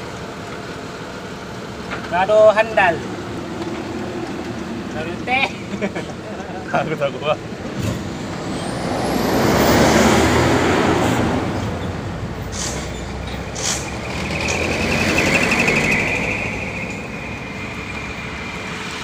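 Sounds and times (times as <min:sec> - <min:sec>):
heavy trucks driving past: 0:00.0 - 0:19.0
short hisses: 0:12.5 - 0:14.0.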